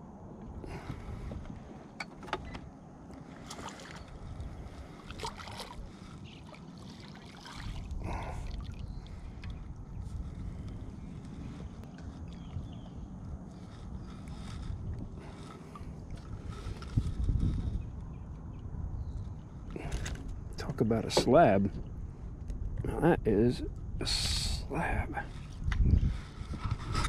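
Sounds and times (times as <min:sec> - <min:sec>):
landing net swishing through water: 0:03.2 - 0:09.3
fish splashing at the surface: 0:06.5 - 0:08.8.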